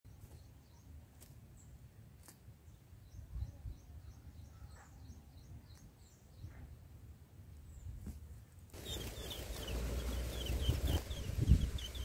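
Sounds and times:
small bird chirps: 0.1 - 6.9, 8.7 - 12.0
low background rumble: 8.8 - 12.0.

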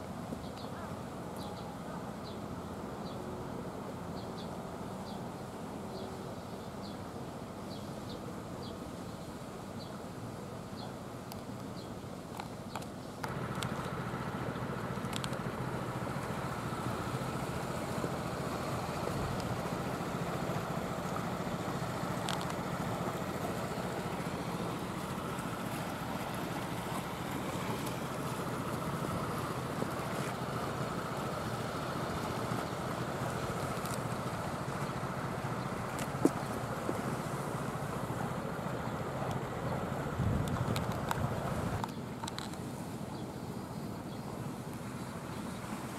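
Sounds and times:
low engine drone: 13.2 - 42.4.

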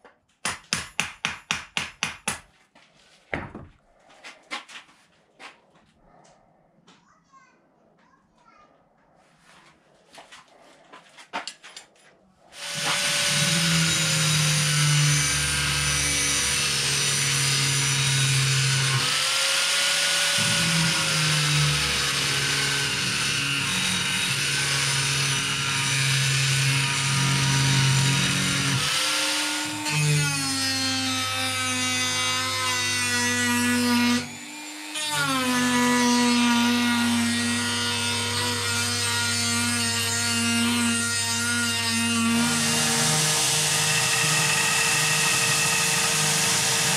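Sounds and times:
electric grinder grinding steel: 12.5 - 46.9
hand-held grinder: 12.5 - 46.9.

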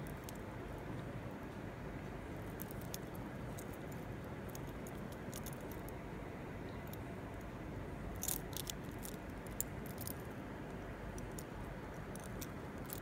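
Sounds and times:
steady low hiss: 0.0 - 13.0
earrings clicking and jingling: 2.5 - 6.0, 8.1 - 10.3, 11.1 - 13.0.

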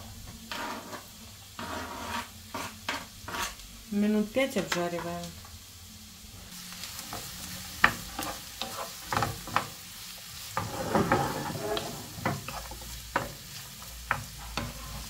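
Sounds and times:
vegetables sizzling in a frying pan: 0.0 - 15.0.

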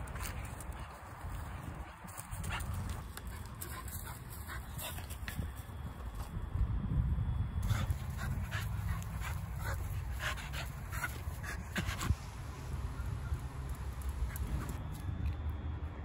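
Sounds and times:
dog panting hard: 7.6 - 12.3.

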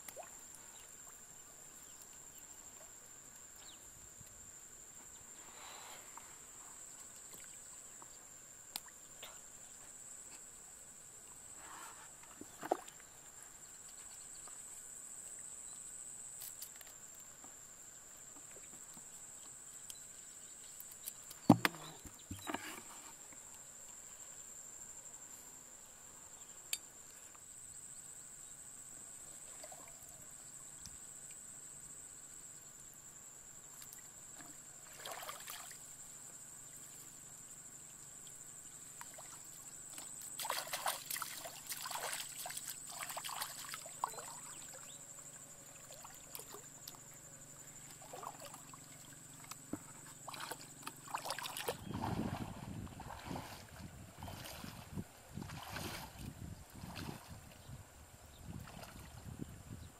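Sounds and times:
insects droning: 0.0 - 59.9
small splashes: 12.4 - 13.1, 33.8 - 35.9, 39.0 - 45.0, 45.7 - 47.0, 47.8 - 57.6, 58.5 - 59.2
hands sloshing in water: 40.4 - 44.6, 47.9 - 48.7, 50.2 - 57.4.

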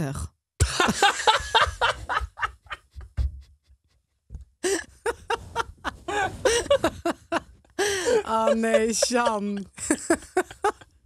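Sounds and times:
people laughing: 0.6 - 3.1, 4.6 - 10.9.

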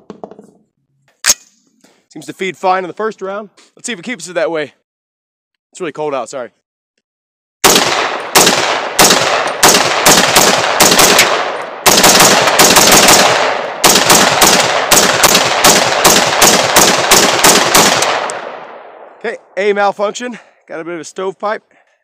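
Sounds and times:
rifle gunshots: 7.6 - 19.1.

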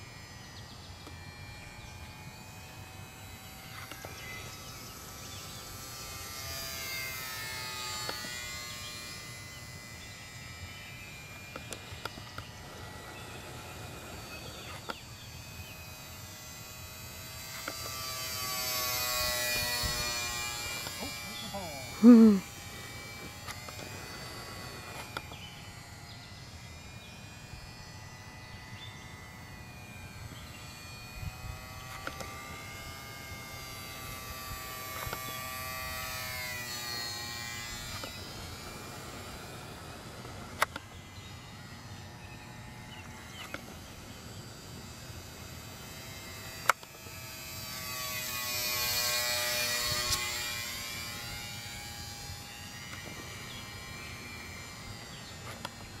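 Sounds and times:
electric motor and propeller whine: 0.0 - 56.0
sharp clicks: 11.4 - 12.5, 17.5 - 18.4, 40.2 - 40.9, 46.6 - 47.0.

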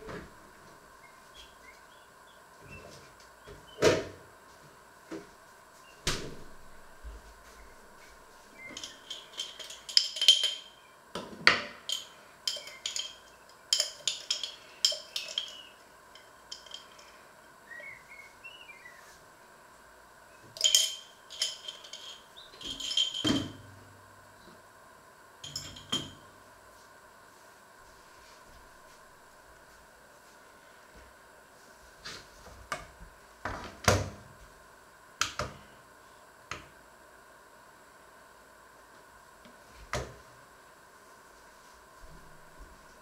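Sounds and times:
dishes and cutlery clinking: 8.6 - 10.9, 11.6 - 17.2, 20.6 - 23.7, 25.4 - 26.3.

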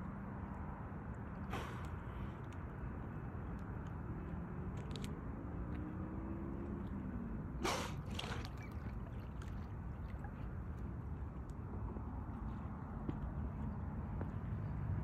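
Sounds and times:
dolphin exhaling through blowhole: 7.6 - 9.6.

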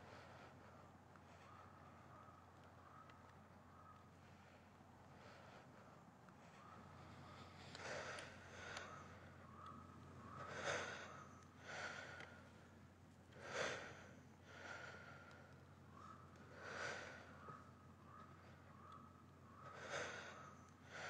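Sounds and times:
man breathing: 10.3 - 12.6, 13.3 - 15.5, 19.6 - 21.0.

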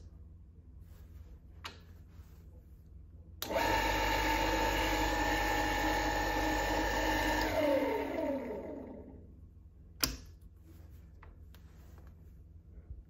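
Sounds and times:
milling motor starting and spinning down: 3.4 - 9.2.

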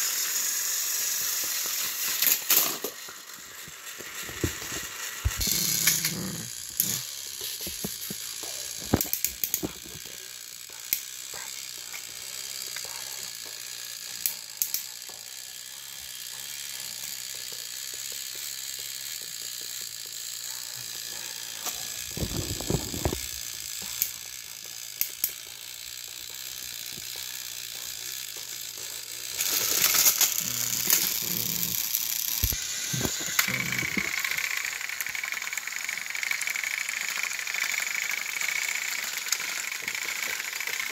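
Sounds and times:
toy train motor whirring: 0.0 - 40.9
plastic wheels rattling: 20.9 - 40.9.

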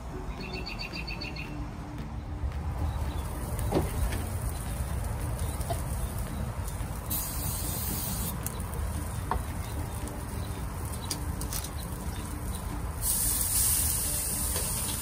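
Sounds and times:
gas grill rumbling: 2.8 - 15.0
faint crackles from grate: 3.0 - 15.0
steak sizzling on grill: 3.2 - 15.0.

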